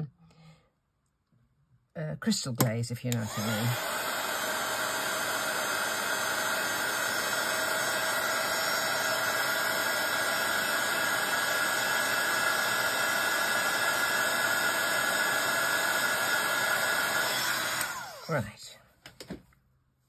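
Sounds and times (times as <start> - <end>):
heat gun blowing air: 3.1 - 18.4.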